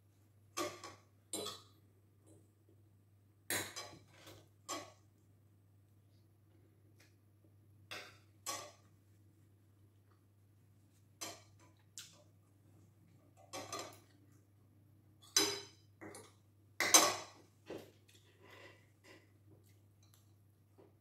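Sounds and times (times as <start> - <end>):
cutlery clinking and scraping plate: 13.5 - 14.1.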